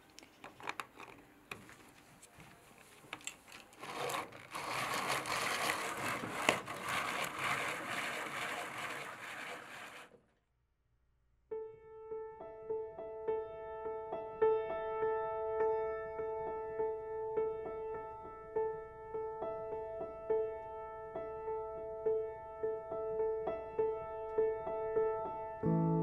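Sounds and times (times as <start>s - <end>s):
nut grater drum grinding: 3.7s - 10.2s
piano tune: 11.5s - 26.0s.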